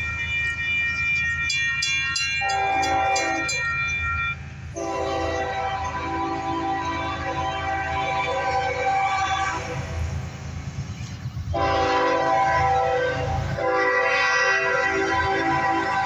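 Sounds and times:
locomotive air horn blasts: 2.3s - 10.2s, 11.5s - 16.0s.

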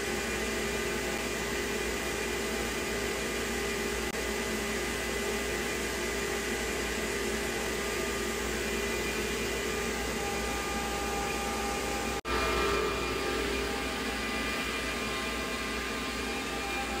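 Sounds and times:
dust collector rushing air: 0.0s - 17.0s
router spindle whine: 0.0s - 17.0s.

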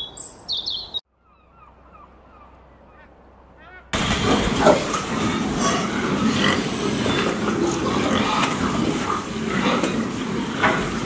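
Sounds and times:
pigs grunting and squealing: 4.0s - 11.0s.

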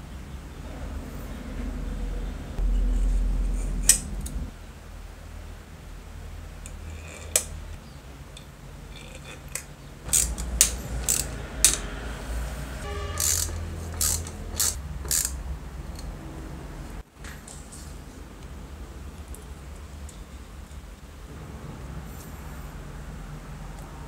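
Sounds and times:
low steady hum: 0.0s - 24.0s
screwdriver metal clicks and taps: 9.2s - 11.9s.

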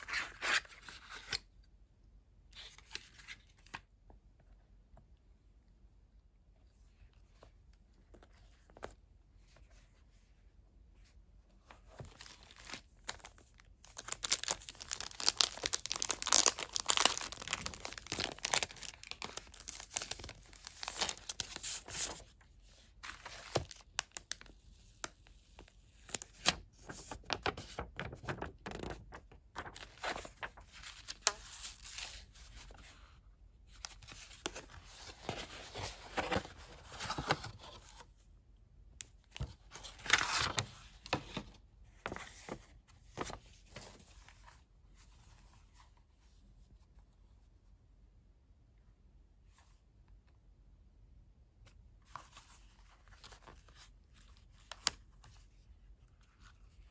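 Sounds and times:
plastic bag crinkling: 13.9s - 21.4s.

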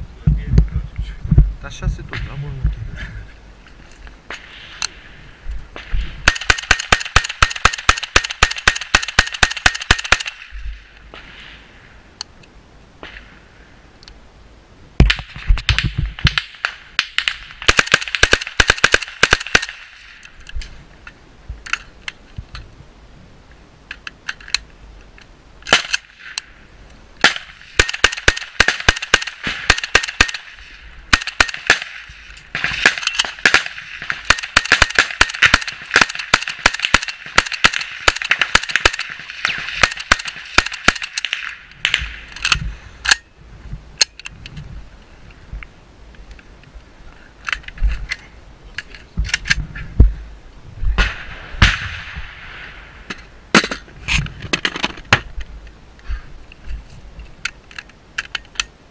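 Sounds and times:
rifle shots in rapid strings: 6.2s - 10.4s, 32.6s - 42.0s.

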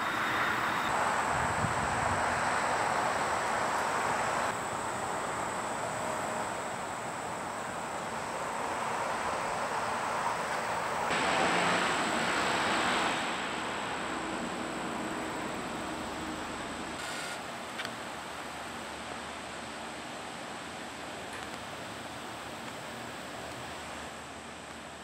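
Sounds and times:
faint high whine: 0.0s - 19.0s
outdoor background rush: 0.0s - 25.0s.

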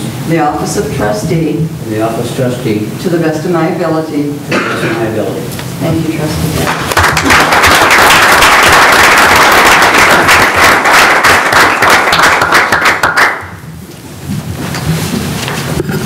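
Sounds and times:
audience applauding: 6.6s - 13.6s.

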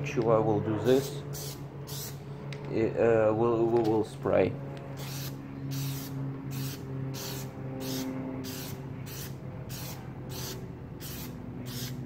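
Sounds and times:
low steady hum: 0.0s - 12.0s
aerosol can spraying in pulses: 5.0s - 12.0s.

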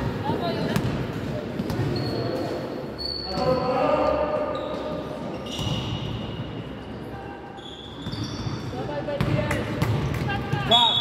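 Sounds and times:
ball bouncing on hall floor: 0.0s - 2.4s, 8.0s - 10.9s.

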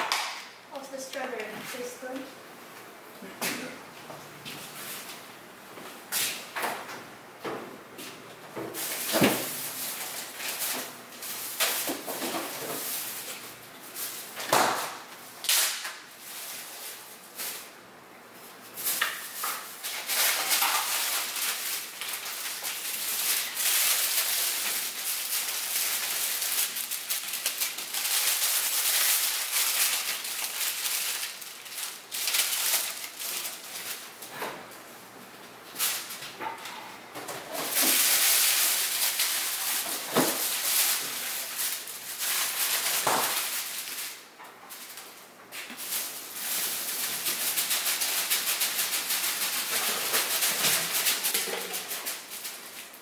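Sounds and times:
bags and packaging rustling: 8.7s - 14.4s, 18.6s - 34.6s, 37.2s - 53.0s.

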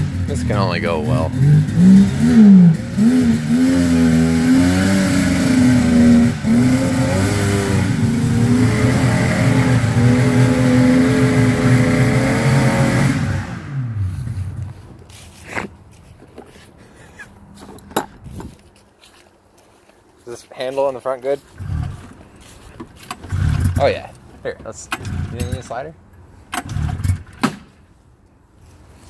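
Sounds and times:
snowmobile engine revving: 0.0s - 14.7s
faint knocks and rustles: 14.6s - 20.0s.

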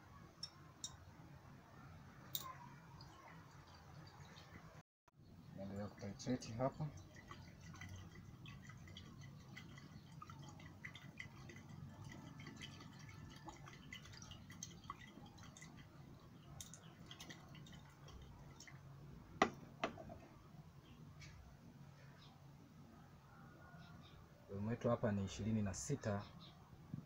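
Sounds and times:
liquid swirling in glass flask: 6.4s - 18.8s
glassware knocking together: 19.4s - 20.2s.

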